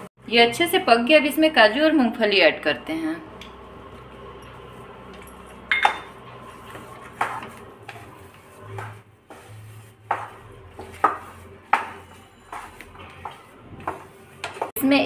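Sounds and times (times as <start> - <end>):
wooden spatula scraping pan: 4.0 - 15.0.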